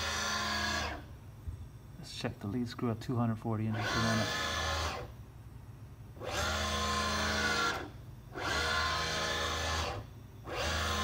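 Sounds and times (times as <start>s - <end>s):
servo motor whine: 0.0s - 1.1s, 3.7s - 5.2s, 6.2s - 11.0s.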